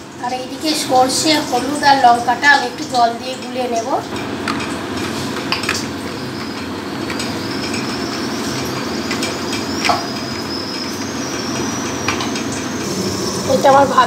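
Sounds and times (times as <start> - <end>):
oil sizzling in a pan: 0.0 - 14.0.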